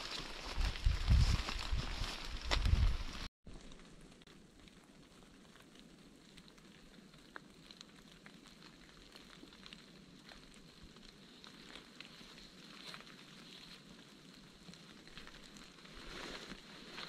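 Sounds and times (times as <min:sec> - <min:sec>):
soft hiss with ticks and crackles: 0:02.0 - 0:17.0.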